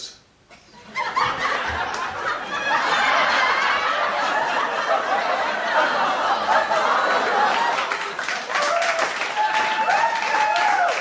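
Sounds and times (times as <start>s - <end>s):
studio audience laughing: 0.6s - 8.8s.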